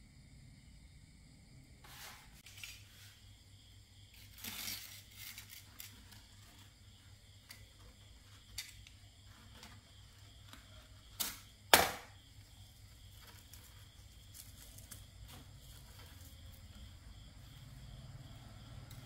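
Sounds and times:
faint scraping: 1.8s - 3.4s
wax candle snapping: 11.1s - 12.1s.

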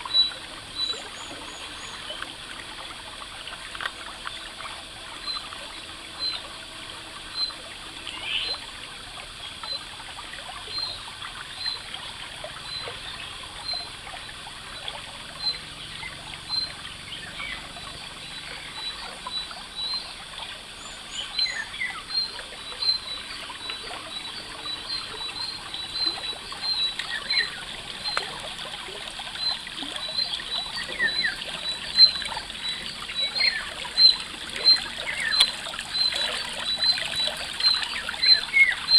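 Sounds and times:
stream trickling over stones: 0.0s - 38.9s
birds chirping: 7.3s - 8.6s, 12.6s - 38.9s.

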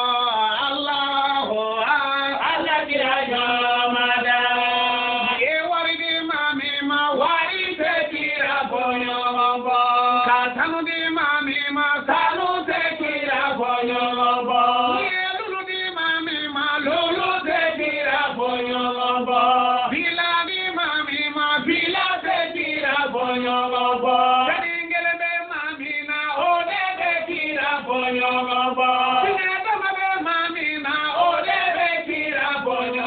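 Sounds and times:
man chanting melodically: 0.0s - 8.2s.

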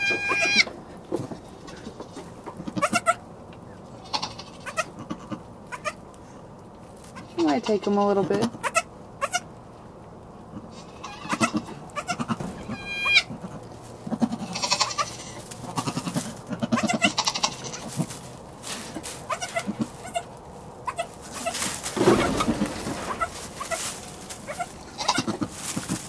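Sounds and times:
goat bleating: 0.0s - 0.7s, 1.6s - 3.2s, 4.0s - 6.0s, 7.2s - 9.5s, 10.6s - 18.1s, 19.0s - 26.0s
straw rustling: 5.6s - 8.2s, 11.8s - 26.0s.

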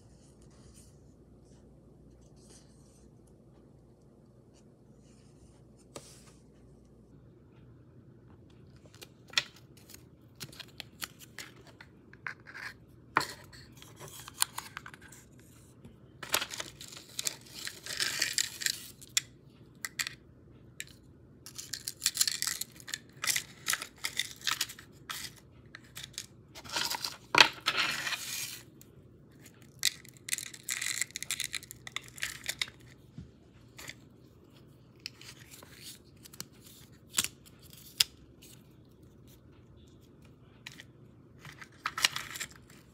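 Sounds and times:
paper crinkling and rustling: 13.2s - 19.0s.

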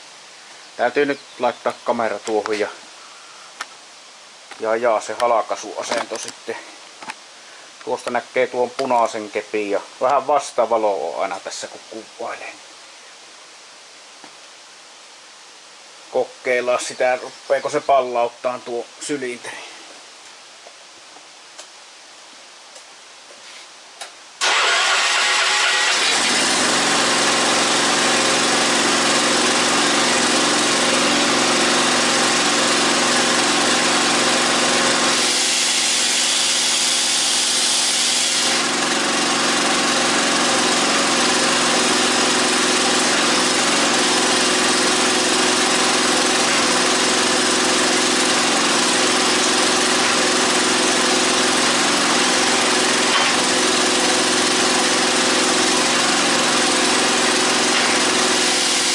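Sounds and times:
hydraulic power unit running: 24.4s - 58.9s.

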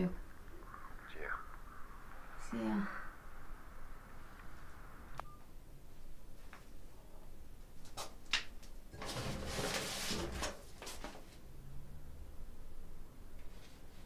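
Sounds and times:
rummaging and rustling: 9.0s - 11.4s.

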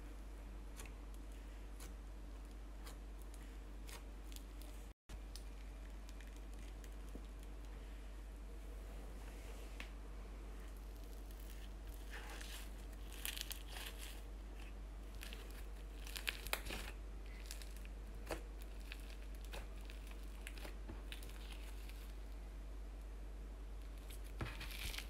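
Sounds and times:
slime squishing and popping: 10.9s - 14.2s, 15.1s - 22.0s.

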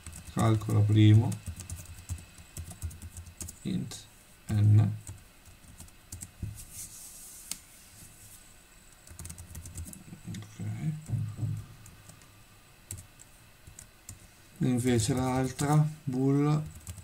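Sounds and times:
typing on computer keyboard: 0.0s - 0.6s, 1.3s - 3.6s, 9.0s - 10.0s, 12.9s - 13.9s, 16.6s - 17.0s.

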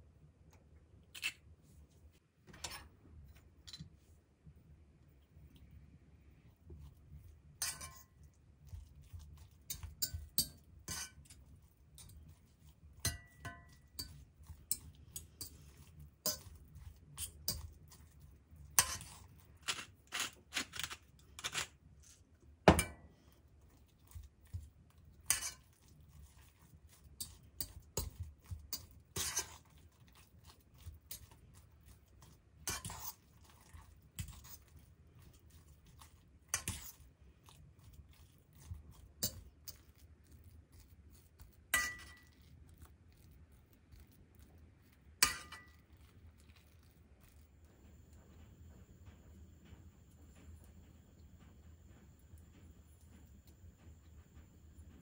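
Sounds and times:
metal spoon scraping saucepan: 2.5s - 2.9s, 7.6s - 8.2s, 9.7s - 12.3s, 13.0s - 21.8s, 25.2s - 26.5s, 27.2s - 29.8s, 30.8s - 37.0s, 41.7s - 42.3s, 45.2s - 45.8s
pepper mill grinding: 13.1s - 22.2s.

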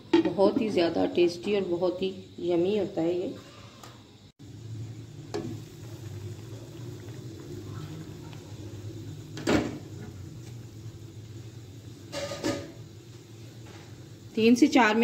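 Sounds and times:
pot of water bubbling: 4.4s - 15.0s.

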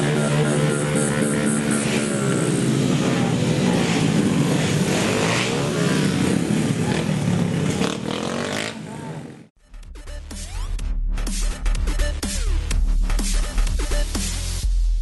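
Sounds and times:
small motorbike engines revving: 0.0s - 9.5s.

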